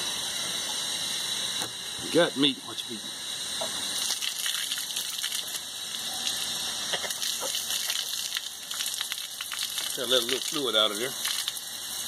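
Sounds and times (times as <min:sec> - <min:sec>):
water splashing on wet ground: 0:04.0 - 0:11.7.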